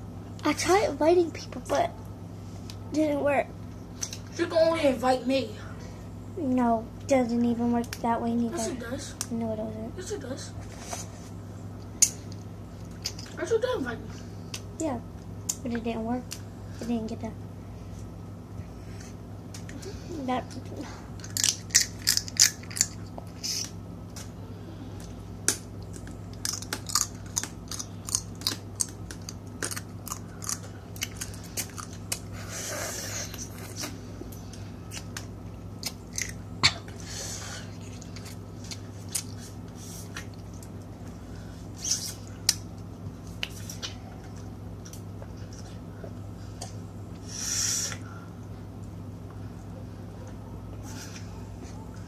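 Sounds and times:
steady low hum: 0.0s - 52.0s
crab shells cracking: 21.2s - 23.1s, 25.4s - 32.2s
chewing: 25.8s - 32.3s.

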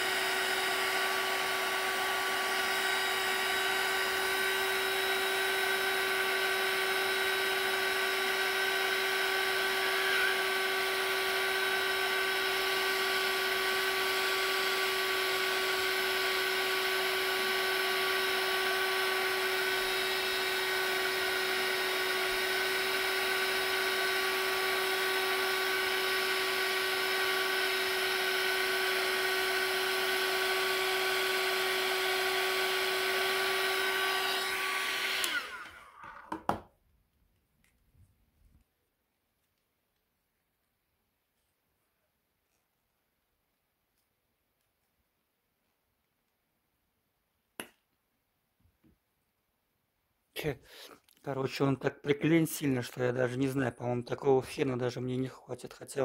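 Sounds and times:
heat gun fan whining: 0.0s - 36.6s.

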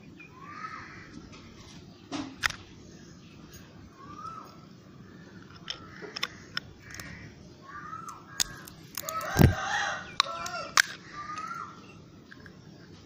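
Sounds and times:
birds calling: 0.0s - 13.0s
plastic case snapping apart: 8.4s - 9.6s.

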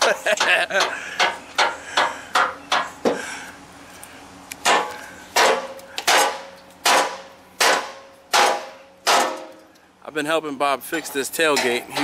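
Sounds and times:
wood ringing off metal: 4.6s - 9.7s.

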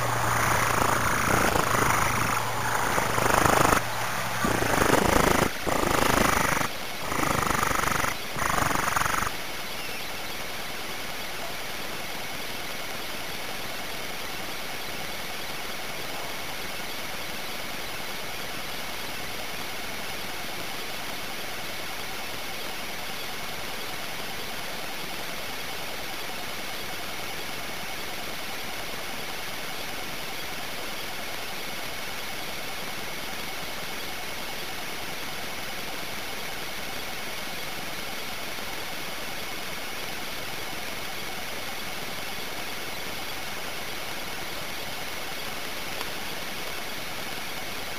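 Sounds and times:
microphone hiss: 0.0s - 12.0s
faint high whine: 0.0s - 47.9s.

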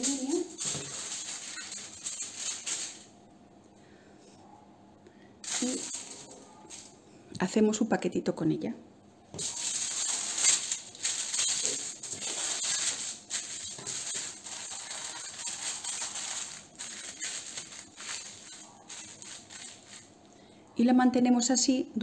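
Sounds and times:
foil crinkling: 0.0s - 3.1s, 5.4s - 7.0s, 9.4s - 20.2s.

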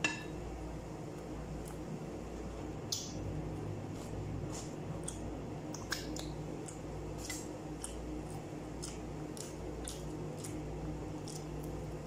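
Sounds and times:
steady low hum: 0.0s - 12.0s
wet chewing sounds: 2.9s - 12.0s.

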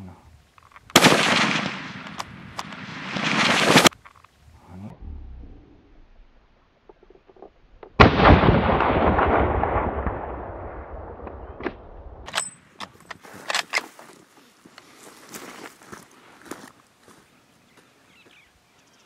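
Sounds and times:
rifle shot booming: 0.9s - 3.9s, 8.0s - 12.3s.

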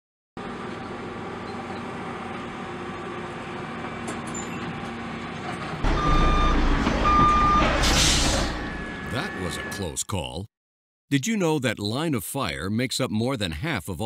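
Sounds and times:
truck engine running: 0.4s - 9.7s
backup alarm beep: 5.9s - 10.0s.

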